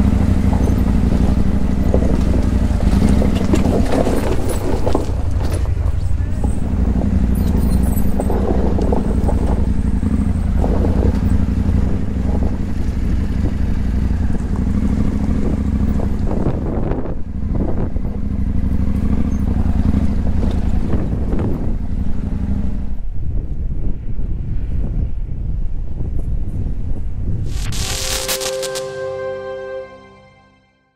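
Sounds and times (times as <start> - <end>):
motorcycle engine running: 0.0 - 3.8, 5.7 - 21.1.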